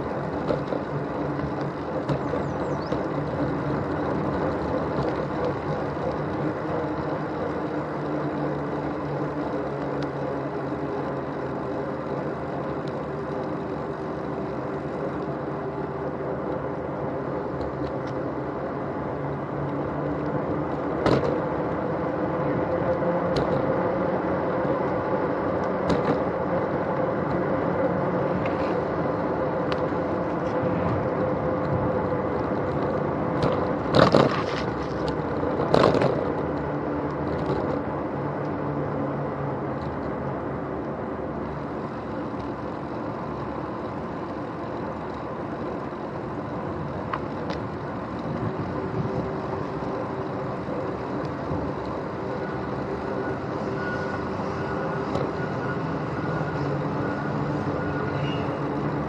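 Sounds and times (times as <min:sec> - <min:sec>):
bicycle wheels jolting over bumps: 0:00.0 - 0:22.3, 0:22.9 - 0:38.3
bicycle tyre and wind noise: 0:00.0 - 0:59.0.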